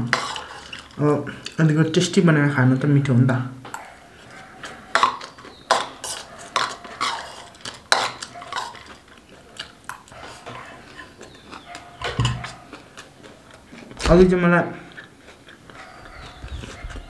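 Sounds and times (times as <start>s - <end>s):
metal spoon scraping a bowl: 0.0s - 1.0s, 3.8s - 9.1s.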